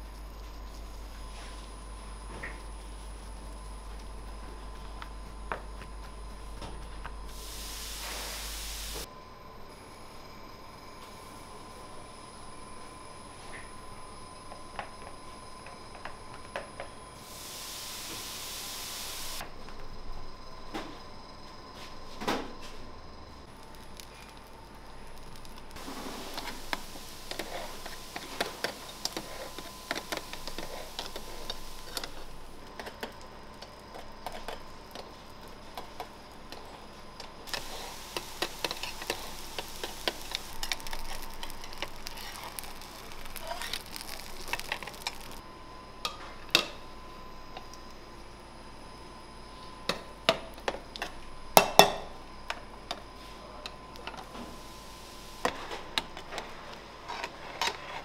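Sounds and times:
faint food sizzling: 0.0 - 9.1, 17.1 - 19.5, 23.4 - 48.0, 50.0 - 58.0.

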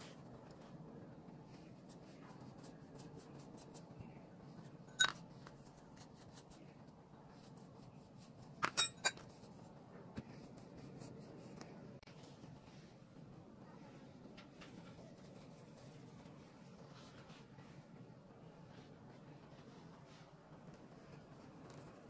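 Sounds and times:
utensil clinking on tableware: 4.9 - 5.2, 8.6 - 9.2.

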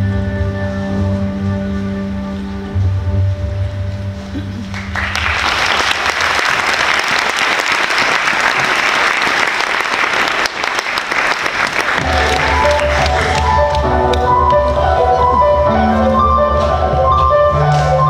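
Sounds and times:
stage music: 0.0 - 18.0
audience applause: 4.7 - 14.6.

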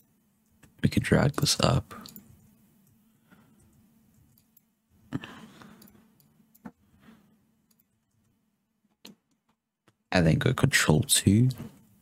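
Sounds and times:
faint steady hum: 0.0 - 12.0
keyboard and mouse clicks: 2.0 - 3.0, 7.7 - 10.0.

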